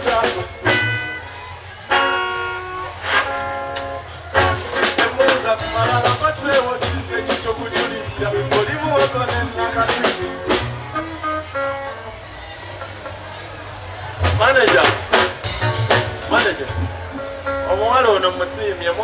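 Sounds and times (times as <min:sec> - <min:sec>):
drum kit hits: 0:03.8 - 0:10.8, 0:14.2 - 0:17.1.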